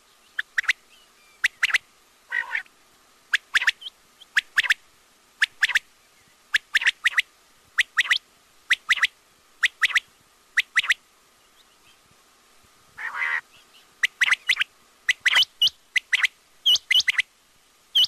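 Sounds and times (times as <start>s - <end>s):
quail calling: 1.4s - 2.7s, 3.3s - 4.8s, 6.6s - 7.2s, 7.8s - 10.0s, 10.6s - 11.0s, 13.0s - 17.3s.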